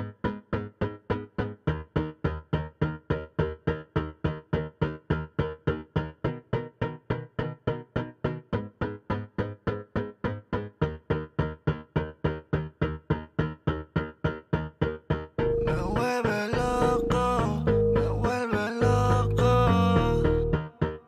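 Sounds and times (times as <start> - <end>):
repeated keyboard chord: 15.4 - 21.0.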